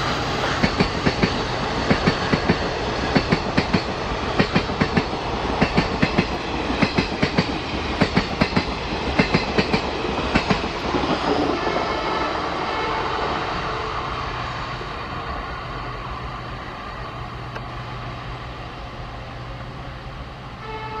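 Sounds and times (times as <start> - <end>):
train wheels clacking: 0.0 - 12.4
train rumble: 0.0 - 21.0.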